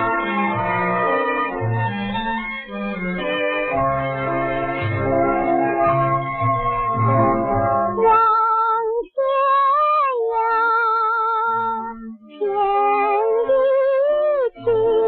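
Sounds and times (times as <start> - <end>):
woman singing with vibrato: 8.0 - 15.0.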